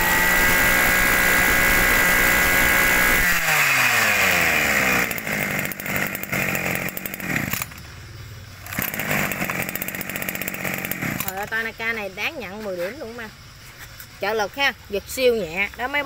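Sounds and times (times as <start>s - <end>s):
brush cutter engine running unevenly: 0.0s - 7.9s, 8.6s - 11.7s
brush cutter engine winding down: 0.0s - 7.9s, 8.6s - 11.6s.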